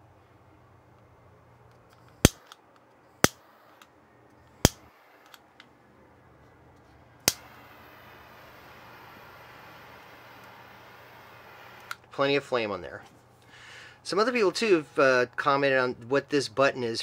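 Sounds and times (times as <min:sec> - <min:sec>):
piezo igniter snapping: 0:02.0 - 0:03.9, 0:04.6 - 0:05.7, 0:07.2 - 0:07.6
torch flame hissing: 0:07.3 - 0:12.0.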